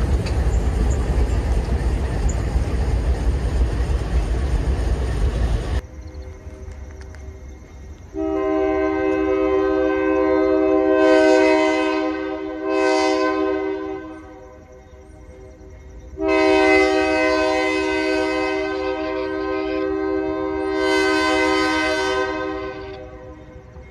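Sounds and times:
low engine rumble: 0.0s - 8.1s
locomotive air horn blasts: 8.1s - 14.4s, 16.2s - 23.4s.

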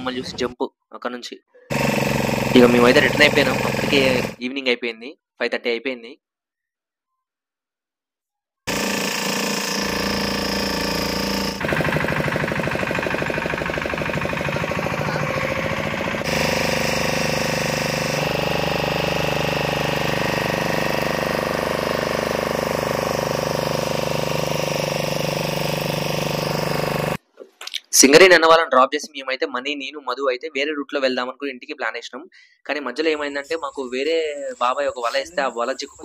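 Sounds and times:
motorboat engine running: 1.7s - 4.4s, 8.7s - 27.2s.

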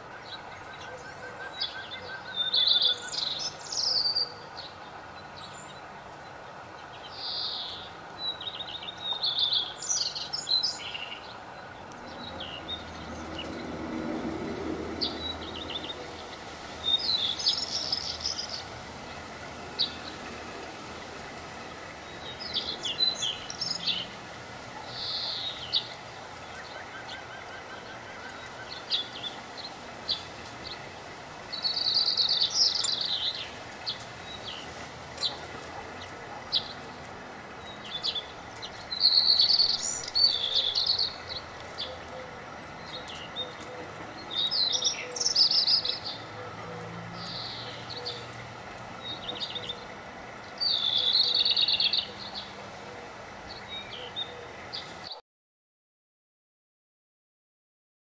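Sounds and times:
outdoor background hiss: 0.0s - 55.2s
songbirds singing: 0.0s - 55.2s
bird chips and calls: 15.0s - 18.7s, 31.5s - 36.8s, 37.6s - 46.6s, 47.2s - 48.4s, 50.5s - 52.5s.

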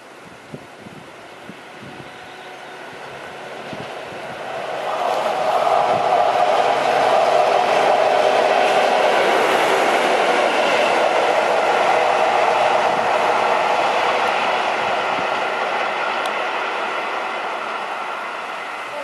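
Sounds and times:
diesel locomotive engine droning: 1.1s - 19.0s
rail clatter: 2.9s - 19.0s.

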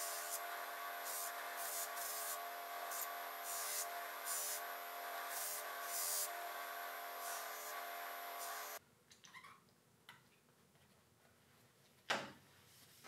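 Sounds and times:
buffing wheel motor hum: 0.0s - 8.8s
hissing buffing bursts: 0.0s - 8.8s.

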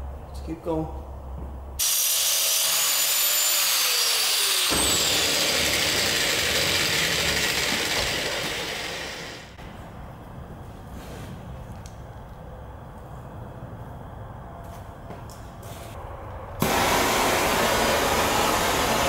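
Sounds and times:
electric power tool motor: 1.8s - 9.6s.

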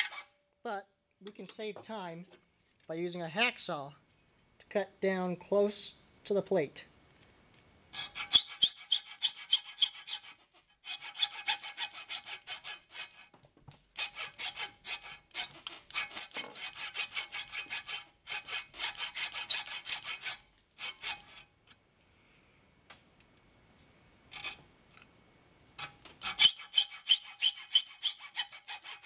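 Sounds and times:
hacksaw cutting brass: 0.0s - 0.3s, 8.0s - 13.3s, 14.0s - 21.5s, 25.8s - 29.0s.

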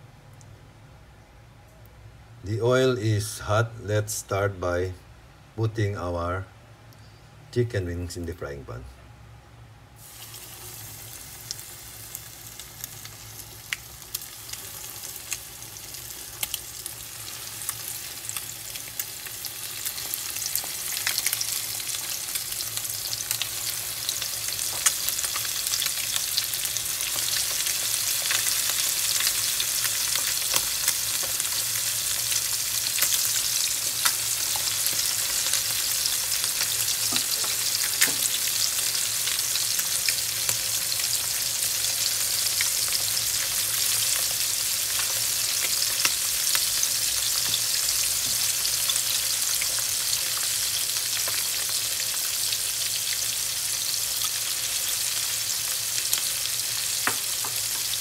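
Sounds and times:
chicken frying in oil: 10.0s - 58.0s
oil popping and crackling: 11.4s - 41.3s, 57.0s - 58.0s.

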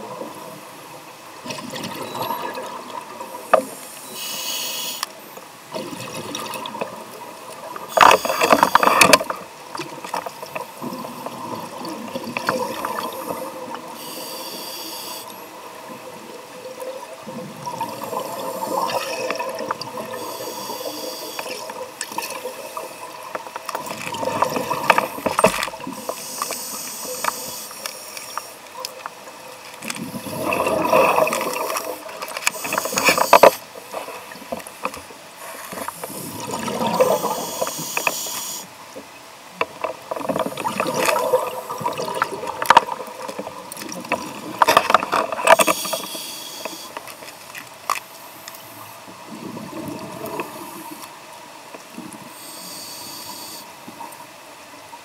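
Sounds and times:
exhaled air bubbling underwater: 0.0s - 4.2s, 5.6s - 27.7s, 28.7s - 38.4s, 39.6s - 47.1s, 48.7s - 54.3s
scuba regulator inhalation hiss: 3.6s - 5.2s, 7.9s - 9.0s, 14.0s - 15.4s, 20.0s - 21.7s, 25.9s - 28.6s, 31.6s - 33.6s, 35.4s - 38.7s, 45.6s - 47.0s, 52.3s - 53.8s.

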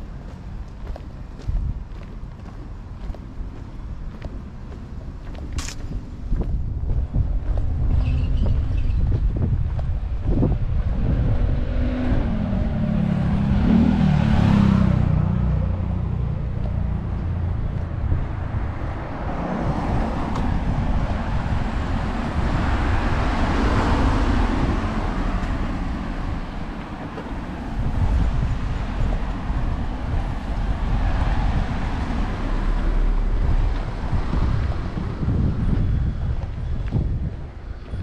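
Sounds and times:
low background rumble: 0.0s - 11.5s
cars passing: 0.0s - 38.0s.

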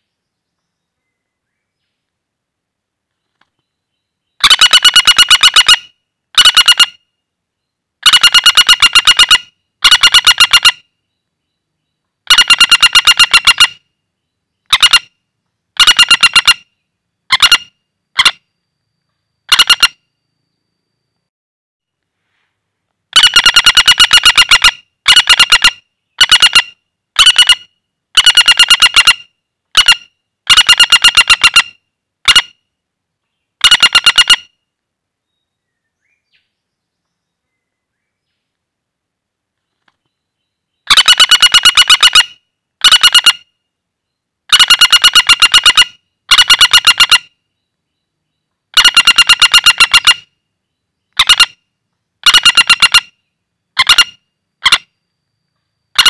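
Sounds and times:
woodpecker rattling trills: 3.4s - 7.0s, 8.0s - 13.9s, 14.5s - 15.2s, 15.8s - 20.3s, 23.1s - 32.6s, 33.6s - 34.6s, 39.8s - 43.7s, 44.5s - 55.1s.

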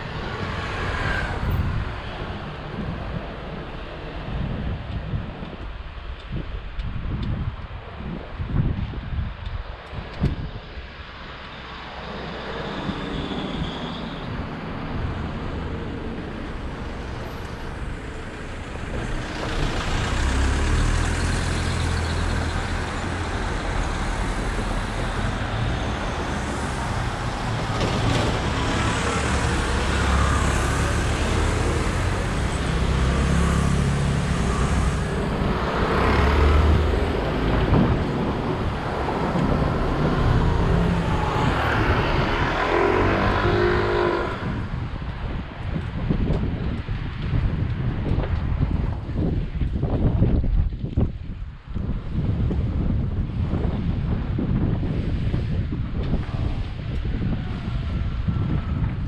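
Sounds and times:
vehicle engines running: 12.0s - 59.0s.

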